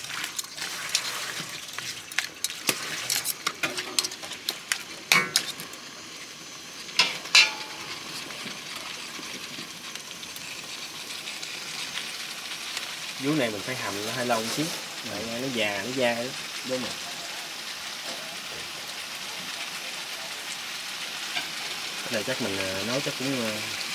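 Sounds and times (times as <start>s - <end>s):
utensil scraping and clinking pot: 0.0s - 5.8s, 7.0s - 8.3s
meat sizzling in a pot: 0.0s - 23.9s.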